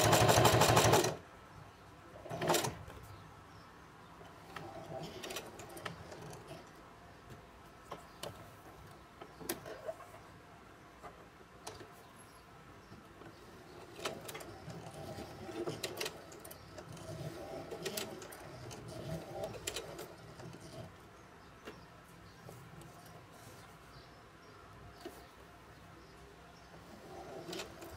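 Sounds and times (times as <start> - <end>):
hand-cranked sewing machine clatter: 0.0 - 1.2, 13.8 - 21.0, 26.9 - 27.9.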